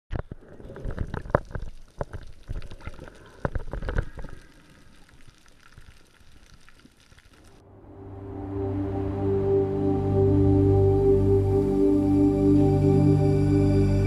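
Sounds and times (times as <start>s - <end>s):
water splashing and gurgling: 0.1s - 7.6s.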